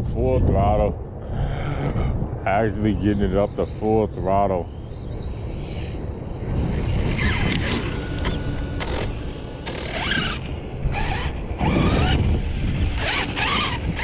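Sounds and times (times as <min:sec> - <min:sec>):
electric motor whine: 0:03.1 - 0:14.0
rumble of tyres and drivetrain: 0:04.8 - 0:14.0.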